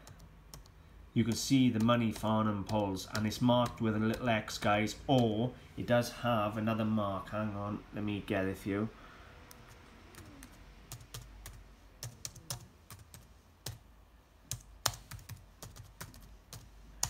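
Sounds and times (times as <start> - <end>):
laptop keyboard typing: 0.0 - 5.4, 9.5 - 13.8, 14.5 - 17.0.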